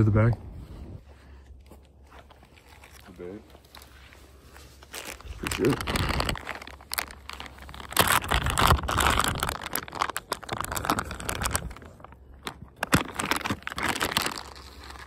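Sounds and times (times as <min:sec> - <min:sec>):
plastic bag crinkling: 0:02.2 - 0:15.0.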